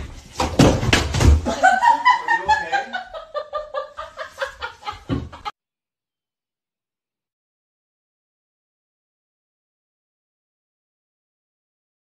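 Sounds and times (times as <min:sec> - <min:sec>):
person falling against door frame: 0:00.0 - 0:01.6.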